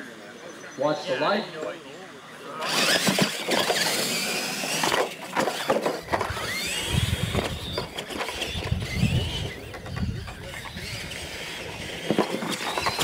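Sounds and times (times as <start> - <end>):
rc truck motors whining: 2.3 - 13.0
trucks knocking and clattering: 2.7 - 13.0.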